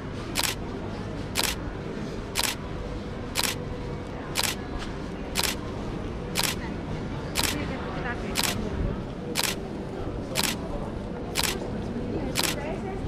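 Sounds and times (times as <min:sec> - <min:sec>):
steady background noise: 0:00.0 - 0:13.0
camera shutter clicking: 0:00.4 - 0:00.6, 0:01.4 - 0:01.6, 0:03.4 - 0:03.6, 0:04.4 - 0:04.6, 0:05.4 - 0:05.6, 0:06.4 - 0:06.6, 0:07.4 - 0:07.6, 0:08.4 - 0:08.6, 0:09.4 - 0:09.6, 0:10.4 - 0:10.6, 0:11.4 - 0:11.6, 0:12.4 - 0:12.6.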